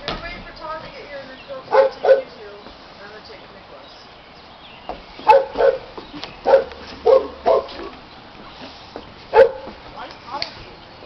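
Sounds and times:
dog barking: 1.7 - 2.3, 5.2 - 7.9, 9.3 - 9.7.

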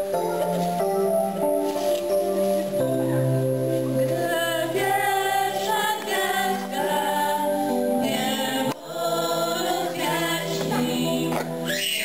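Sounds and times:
children's choir singing: 2.8 - 12.0.

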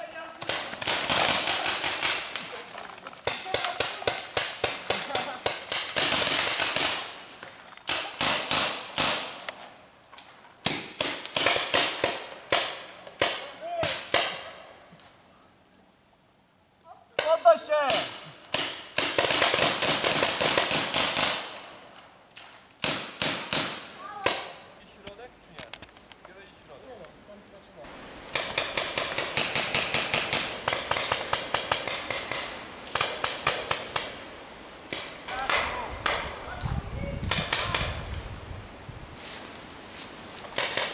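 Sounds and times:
paintball markers firing: 0.4 - 2.5, 28.3 - 34.2, 40.5 - 40.9.

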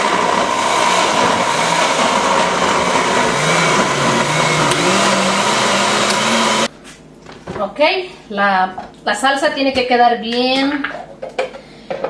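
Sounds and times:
electric blender motor whine: 0.0 - 6.7
liquid churning in blender jar: 0.0 - 6.7.

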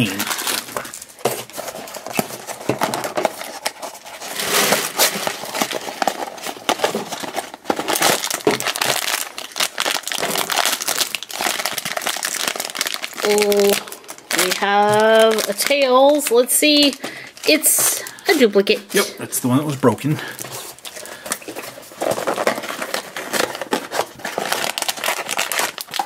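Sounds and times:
person speaking: 0.0 - 0.4, 13.2 - 20.4
foil bag crinkling: 0.0 - 18.8, 20.0 - 26.0.

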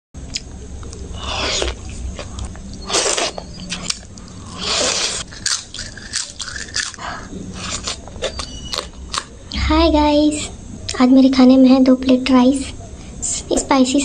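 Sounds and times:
chewing and biting: 1.5 - 9.3.

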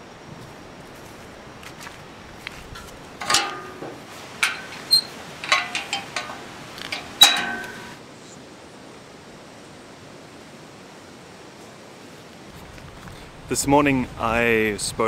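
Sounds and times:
steady outdoor hiss: 0.0 - 15.0
metal gate latch clanking: 3.2 - 8.0.

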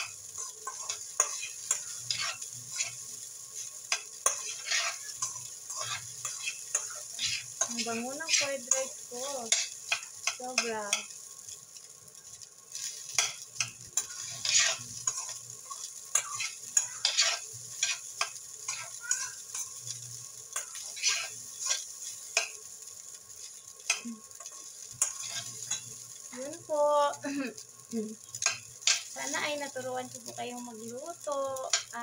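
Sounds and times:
light frying sizzle: 0.0 - 32.0
metal spoon scraping steel pan: 0.4 - 3.0, 3.9 - 8.8, 9.5 - 10.0, 14.0 - 18.1, 20.6 - 22.6, 25.0 - 25.8.

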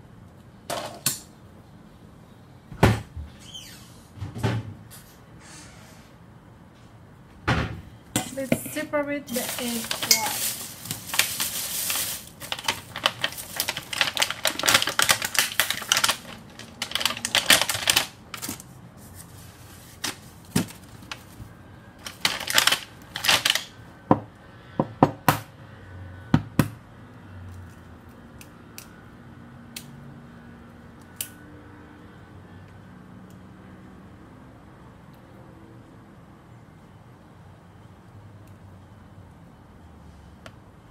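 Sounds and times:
plastic bag rustling: 8.2 - 23.7.

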